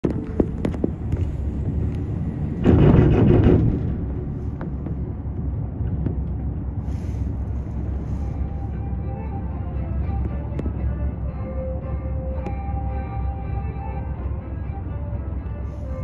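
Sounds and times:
rushing noise: 0:00.0 - 0:15.0
cable car cabin rumble: 0:00.0 - 0:16.0.

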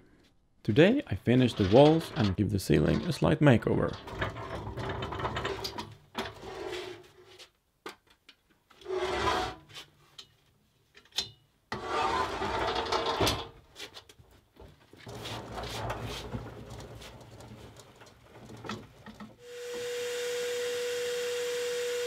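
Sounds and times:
pallet jack wheels rumbling: 0:03.8 - 0:06.4, 0:15.0 - 0:19.4.

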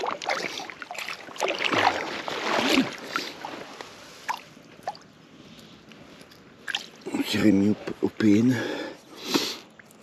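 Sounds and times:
splashing in shallow water: 0:00.0 - 0:05.1, 0:06.6 - 0:07.2.

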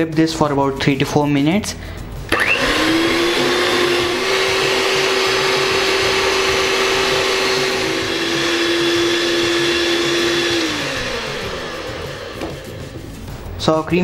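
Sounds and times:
electric hand mixer running: 0:02.3 - 0:13.4.

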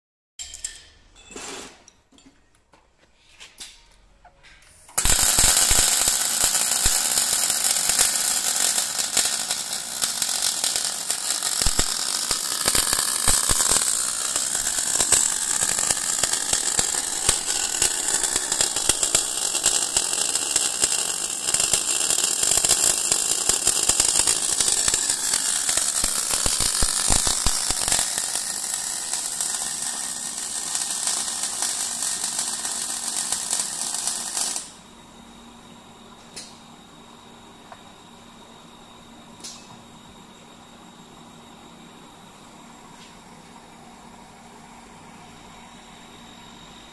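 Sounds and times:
welding arc crackling: 0:05.0 - 0:34.8.

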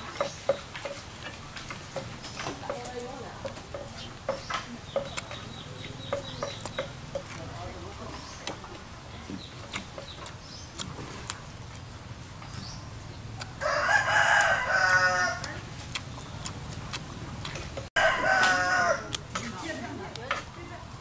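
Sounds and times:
rooster crowing: 0:13.6 - 0:15.5, 0:18.0 - 0:19.2.

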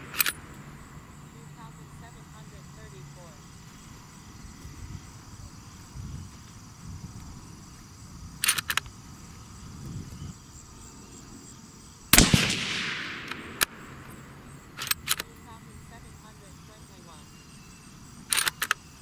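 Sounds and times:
sharp clicks: 0:00.0 - 0:00.6, 0:08.4 - 0:08.9, 0:12.2 - 0:15.4, 0:18.2 - 0:18.9
suppressed rifle shot: 0:12.1 - 0:15.2.

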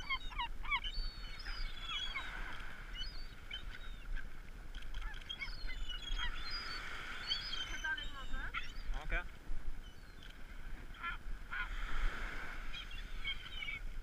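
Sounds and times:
gulls calling: 0:00.0 - 0:14.0.

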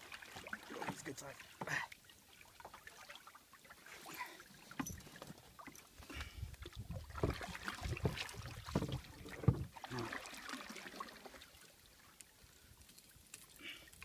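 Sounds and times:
knocks and clicks in a wooden canoe: 0:00.4 - 0:01.8, 0:04.7 - 0:09.9.

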